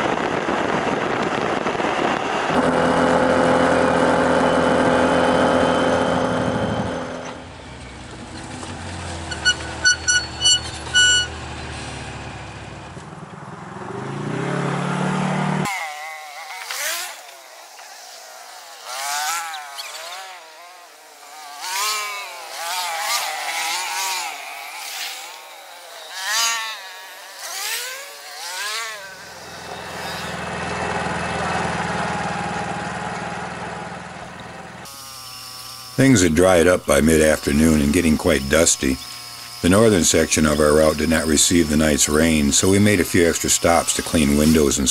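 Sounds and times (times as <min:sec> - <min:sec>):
low engine drone: 0:00.0 - 0:15.7, 0:29.1 - 0:34.9
off-road vehicle engines revving: 0:00.7 - 0:35.0, 0:35.9 - 0:44.9
short beeps: 0:09.3 - 0:11.4.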